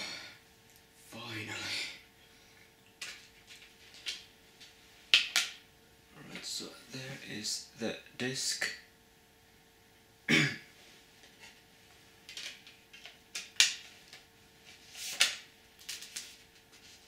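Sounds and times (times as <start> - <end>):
short cough: 10.3 - 10.7
paper rustling: 14.7 - 17.0.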